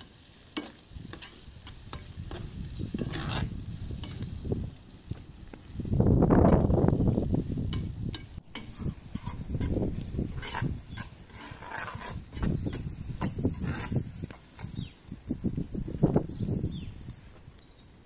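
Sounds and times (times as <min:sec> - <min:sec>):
metal spoon scraping a pot: 0:00.6 - 0:04.2, 0:07.7 - 0:14.8.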